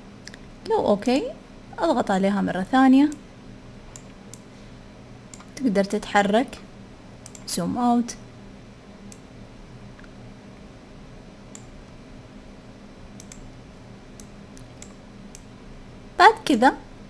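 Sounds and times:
steady low hum: 0.0s - 17.0s
computer mouse clicks: 3.9s - 4.5s, 5.3s - 5.6s, 7.2s - 7.5s, 9.1s - 9.3s, 11.5s - 11.8s, 13.2s - 13.5s, 14.2s - 15.5s.

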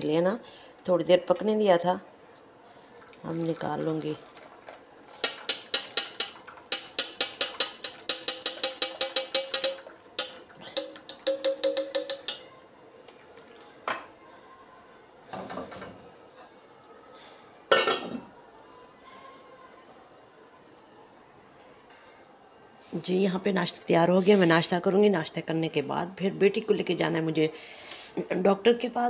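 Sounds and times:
metal spoon clinking in cup: 5.2s - 12.5s
steel pot clanking on hob grate: 5.2s - 12.5s.

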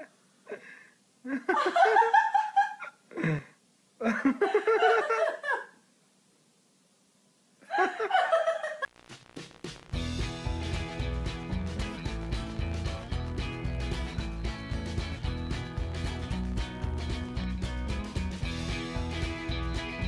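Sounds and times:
people laughing: 1.3s - 3.0s, 4.0s - 5.8s, 7.7s - 8.9s
background music: 9.3s - 20.0s.

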